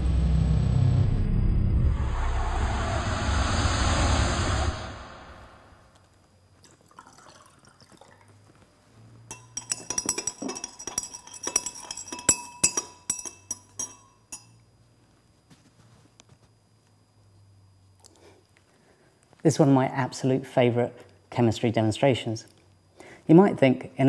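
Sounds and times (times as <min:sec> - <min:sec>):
glass rod clinking against beaker: 0:09.3 - 0:14.7.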